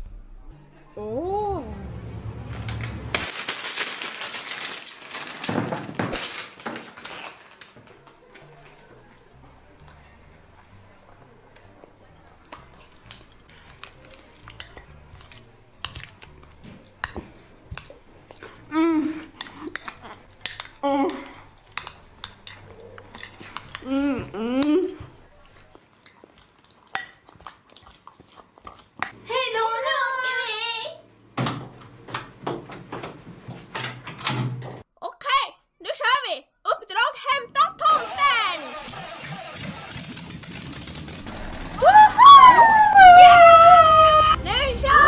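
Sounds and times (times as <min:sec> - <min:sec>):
packaging crinkling: 0:03.1 - 0:07.8
metal spoon scraping bowl: 0:17.8 - 0:23.9.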